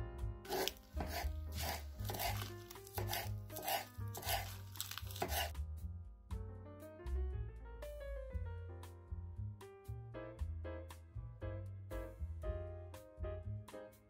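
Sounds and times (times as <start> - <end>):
knife chopping on wooden board: 0.5 - 5.5.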